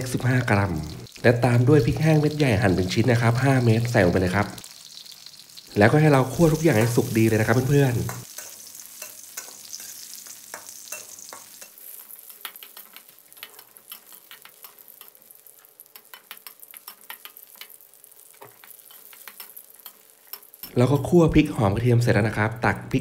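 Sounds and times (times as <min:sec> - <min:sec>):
oil sizzling: 0:00.0 - 0:23.0
metal spatula scraping a wok: 0:08.1 - 0:17.7, 0:18.4 - 0:20.6.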